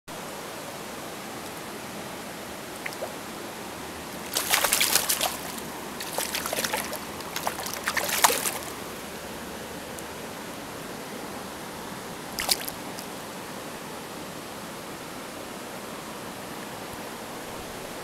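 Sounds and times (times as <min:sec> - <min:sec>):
stream rushing: 0:00.2 - 0:18.0
fish splashing in water: 0:02.8 - 0:03.2, 0:04.0 - 0:08.9, 0:12.4 - 0:13.0.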